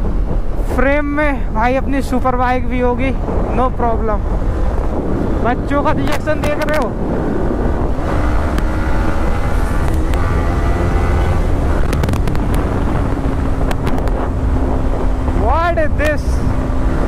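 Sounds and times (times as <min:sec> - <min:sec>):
wind buffeting microphone: 0:00.0 - 0:17.0
motorcycle engine running: 0:07.4 - 0:15.4.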